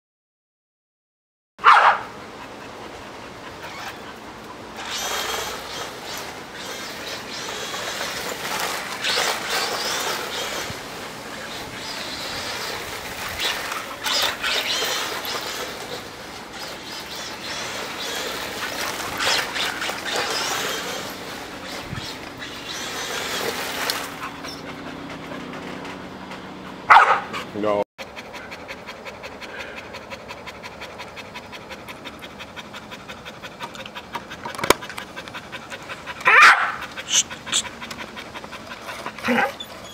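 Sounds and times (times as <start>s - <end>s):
rc car motor surging: 4.8s - 25.9s.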